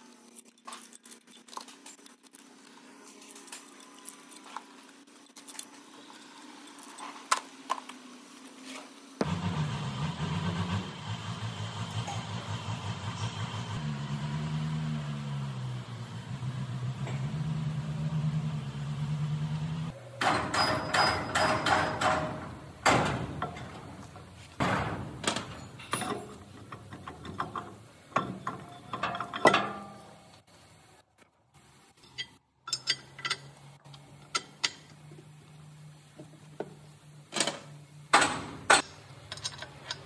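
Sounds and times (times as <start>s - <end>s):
engine running: 9.2s - 20.2s
metal clanks and knocks: 20.2s - 30.2s.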